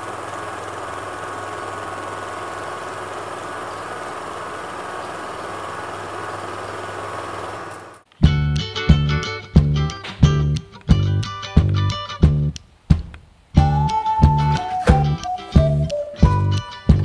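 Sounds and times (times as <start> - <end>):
mechanical whirring: 0.0 - 8.0.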